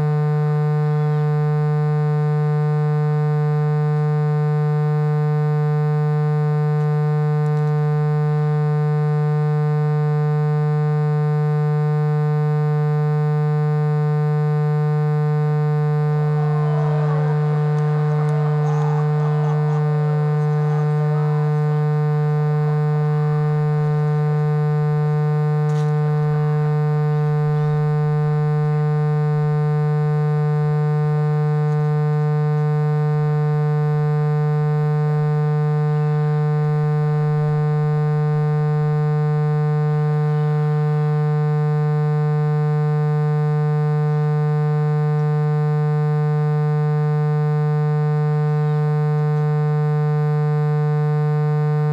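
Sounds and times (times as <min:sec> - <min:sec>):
faint wavering higher sounds: 0:15.9 - 0:22.2.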